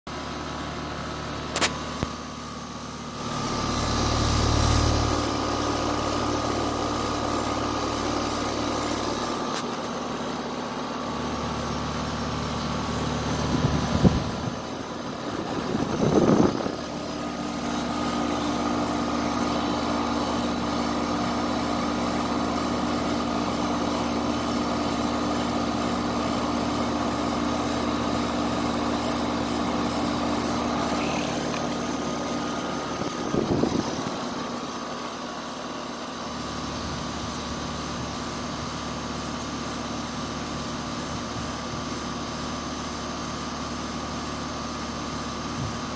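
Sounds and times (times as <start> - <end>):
air conditioner unit humming: 5.7 - 38.0.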